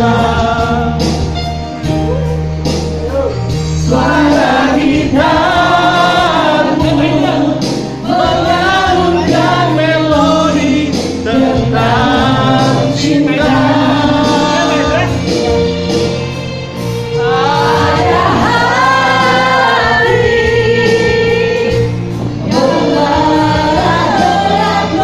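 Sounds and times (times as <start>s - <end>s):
group singing along: 0.0s - 1.4s, 3.5s - 15.2s, 17.0s - 25.0s
amplified music with bass: 0.0s - 25.0s
woman singing into microphone: 17.2s - 25.0s.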